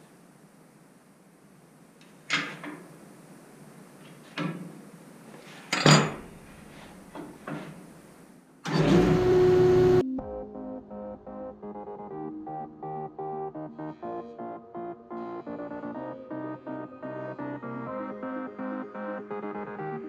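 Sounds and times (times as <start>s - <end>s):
jointer motor whining: 8.6s - 10.0s.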